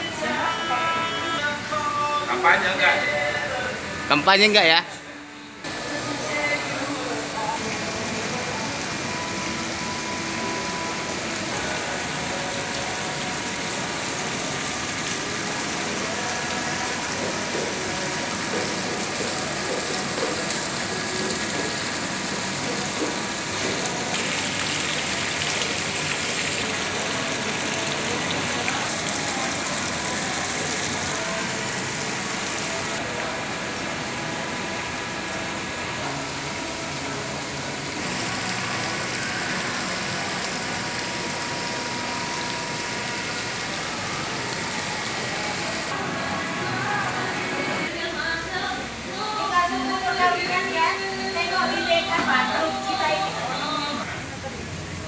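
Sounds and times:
fountain water splashing: 0:05.7 - 0:46.1.

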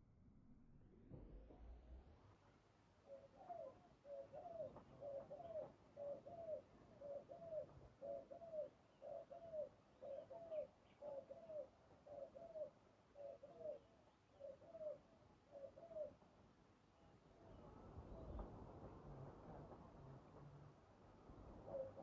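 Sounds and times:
dove cooing: 0:03.0 - 0:16.2, 0:21.6 - 0:22.0.

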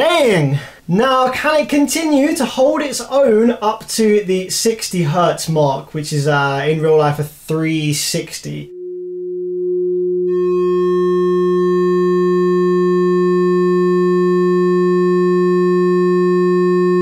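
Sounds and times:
buzzy overtones: 0:08.6 - 0:17.0
steady sine test tone: 0:08.7 - 0:17.0.

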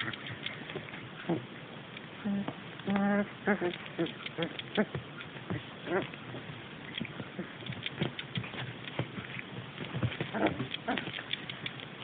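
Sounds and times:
puppies scuffling and clicking: 0:00.0 - 0:01.2, 0:02.8 - 0:12.0
squeaky puppy grunts: 0:02.2 - 0:05.0, 0:10.3 - 0:11.2.

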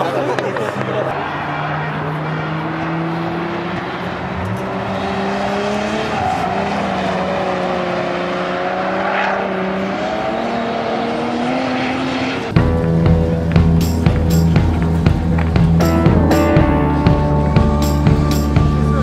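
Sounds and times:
car engine revving high: 0:00.6 - 0:12.6
music with a beat: 0:12.6 - 0:19.0.

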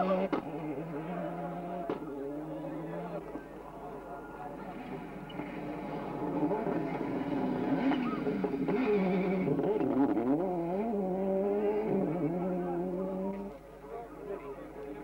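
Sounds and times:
rally car engine at high revs: 0:00.0 - 0:03.2, 0:05.4 - 0:13.6.

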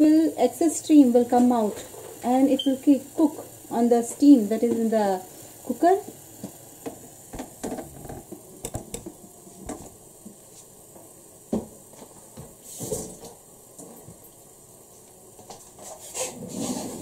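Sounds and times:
clay cookware knocks and clicks: 0:07.3 - 0:09.8.

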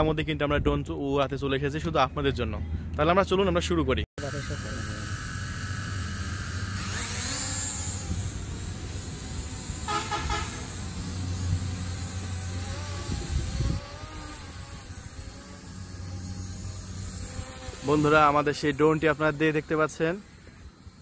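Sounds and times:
drone propellers buzzing: 0:04.2 - 0:21.0
pulsing horn-like tone: 0:09.6 - 0:17.8
wind rumbling on microphone: 0:10.7 - 0:17.8.

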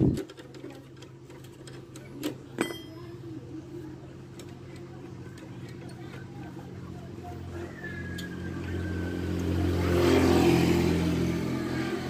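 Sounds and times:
ringing metal clink: 0:02.6 - 0:03.2.

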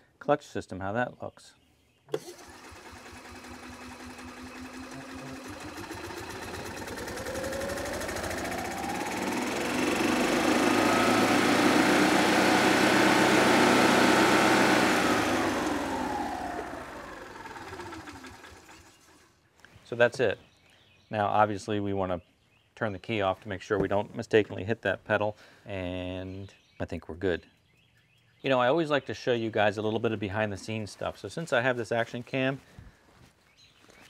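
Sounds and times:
golf cart engine revving: 0:02.1 - 0:19.2.

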